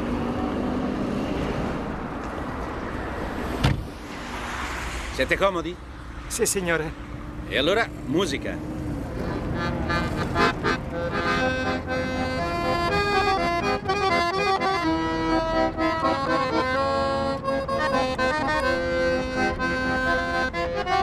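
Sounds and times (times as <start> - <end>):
street musicians playing: 8.6 - 21.0.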